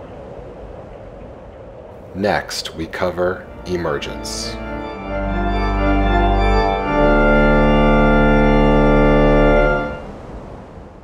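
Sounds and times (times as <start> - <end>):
sustained chords over deep bass: 3.4 - 10.1.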